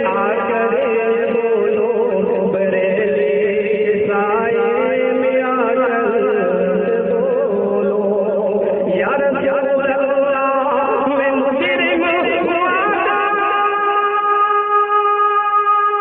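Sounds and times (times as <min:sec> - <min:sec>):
person singing devotional poem: 0:00.0 - 0:16.0.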